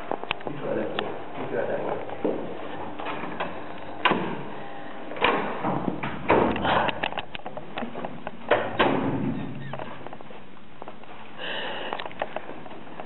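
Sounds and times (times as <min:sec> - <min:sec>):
sharp knocks and thumps: 0:05.2 - 0:10.2.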